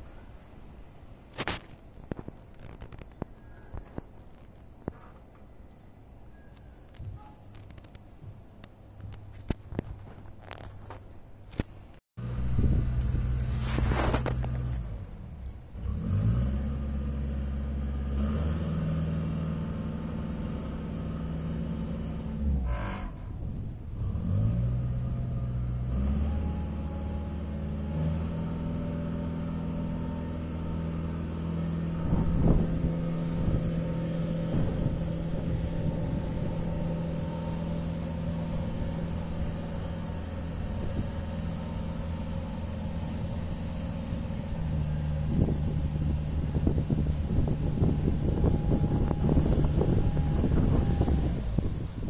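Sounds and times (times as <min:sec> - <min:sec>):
wind noise: 0:06.8 - 0:15.5, 0:22.1 - 0:24.1, 0:29.6 - 0:52.0
boat engine droning: 0:12.2 - 0:52.0.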